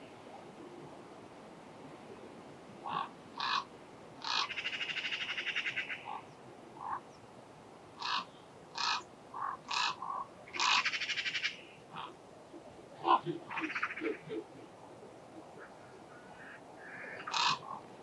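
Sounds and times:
raven rattling call: 2.8s - 7.1s, 8.0s - 12.2s, 13.0s - 14.5s, 15.6s - 17.9s
ravens calling: 2.8s - 7.2s, 8.0s - 12.2s, 13.0s - 14.8s, 15.4s - 17.9s.

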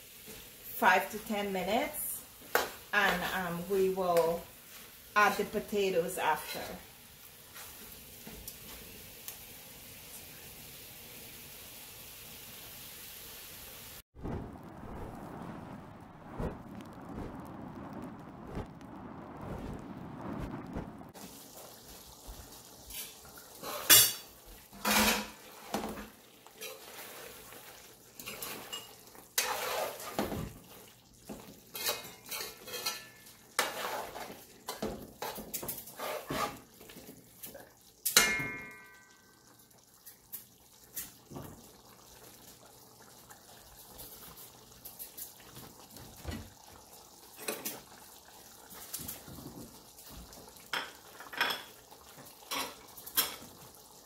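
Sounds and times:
metal spoon scraping a metal pot: 28.3s - 30.2s, 31.7s - 34.3s, 35.2s - 36.6s
spoon striking pot ringing: 38.2s - 39.3s.

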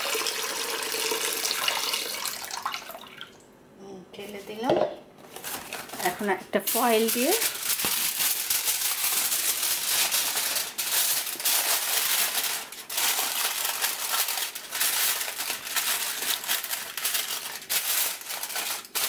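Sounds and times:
aluminium foil crinkling: 5.2s - 19.0s.

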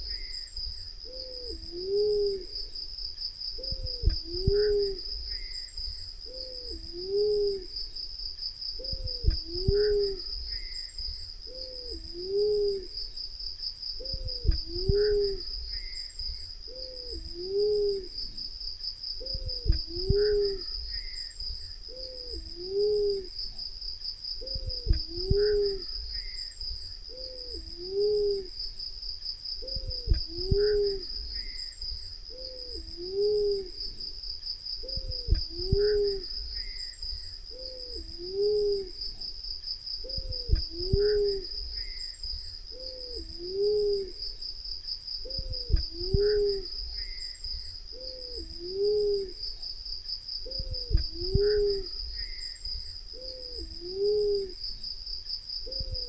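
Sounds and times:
high-pitched insect trill: 0.0s - 56.0s
dove two-note hooting: 1.1s - 2.6s, 6.3s - 7.8s, 11.5s - 13.0s, 16.7s - 18.2s, 21.9s - 23.3s, 27.1s - 28.5s, 34.9s - 36.3s, 53.2s - 54.6s.

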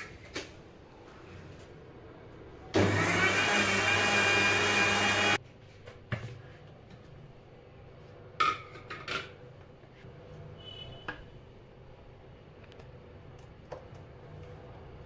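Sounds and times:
mixer grinder motor running: 2.8s - 5.4s.

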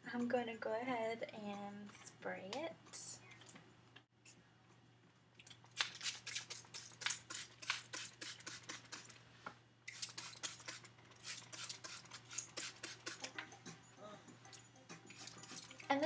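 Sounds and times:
spray bottle squirts: 9.9s - 13.3s.

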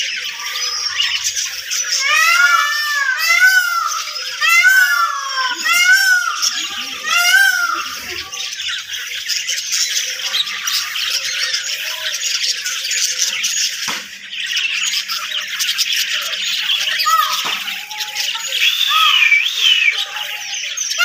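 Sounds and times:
flock of parakeets chattering: 0.0s - 21.0s
loud harsh squawk: 0.3s - 8.8s, 16.8s - 21.0s.

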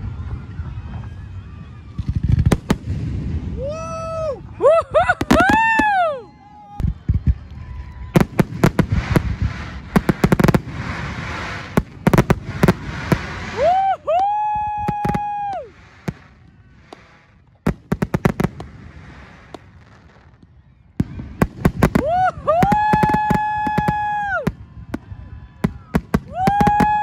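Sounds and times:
fireworks bangs and crackles: 0.0s - 27.0s
whistling firework: 0.0s - 27.0s
fireworks hissing rush: 8.1s - 20.4s.

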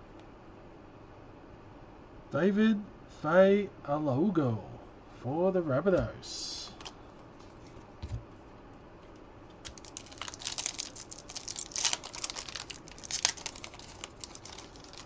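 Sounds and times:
foil wrapper crinkling: 9.6s - 15.0s.

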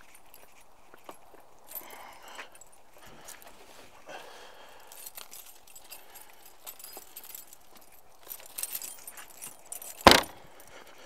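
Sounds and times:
small clicks and clinks: 0.0s - 3.7s, 4.8s - 10.9s
rummaging through gear: 0.0s - 10.8s.

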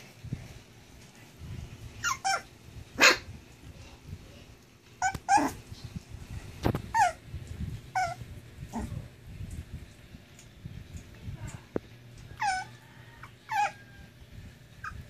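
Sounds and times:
puppy yipping and whining: 2.0s - 3.3s, 5.0s - 5.6s, 6.7s - 7.3s, 7.9s - 8.9s, 12.3s - 14.1s, 14.7s - 15.0s.

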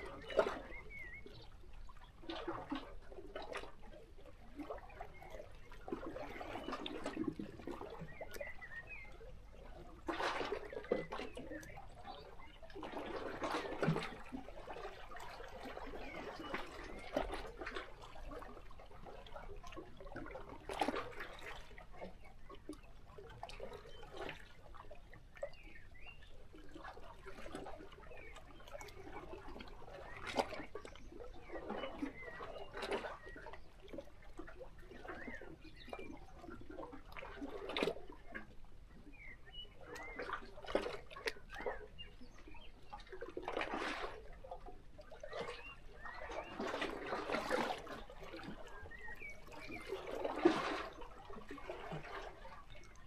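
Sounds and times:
faint bird chirps: 0.1s - 1.6s.

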